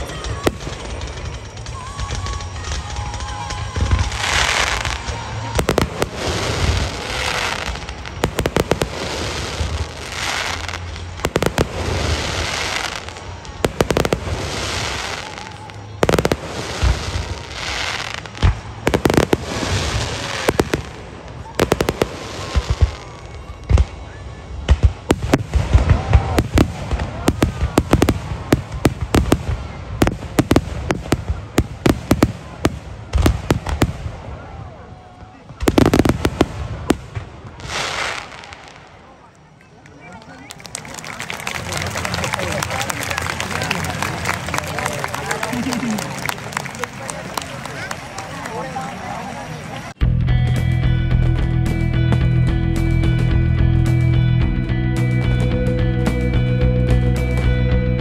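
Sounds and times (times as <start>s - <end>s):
fireworks booming bursts: 0.0s - 39.1s.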